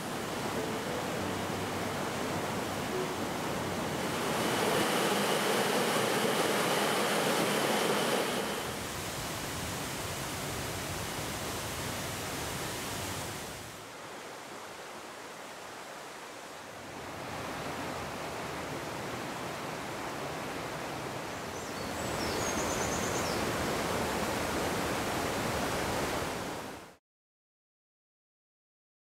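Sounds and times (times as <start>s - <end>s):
waterfall rushing: 0.0s - 20.7s
stream running over boulders: 0.0s - 22.2s.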